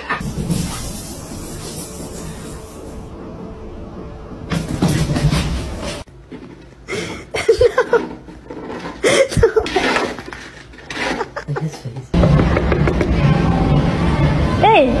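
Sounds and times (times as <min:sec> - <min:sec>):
person laughing: 0:06.9 - 0:08.3, 0:09.0 - 0:10.2, 0:10.9 - 0:12.2.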